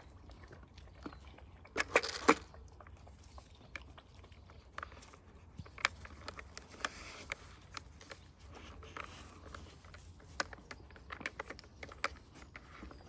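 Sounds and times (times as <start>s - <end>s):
dog chewing: 0.0s - 13.0s
plastic toy clicking and rattling: 1.8s - 2.5s, 5.6s - 13.0s.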